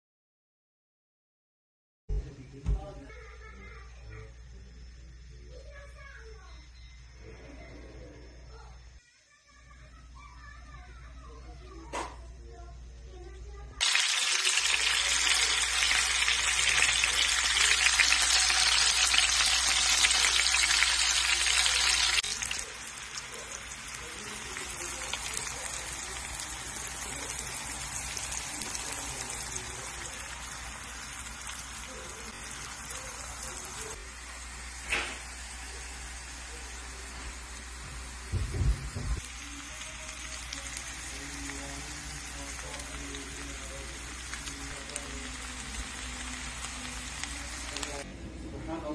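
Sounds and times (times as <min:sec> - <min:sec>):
eggs sizzling in hot oil: 0:13.8 - 0:48.1
onions frying in bubbling oil: 0:13.8 - 0:48.1.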